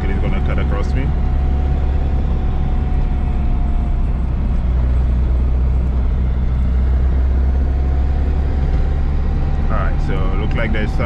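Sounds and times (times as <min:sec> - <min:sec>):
car engine drone: 0:00.0 - 0:11.0
faint steady whine: 0:00.0 - 0:11.0
road noise: 0:00.0 - 0:11.0.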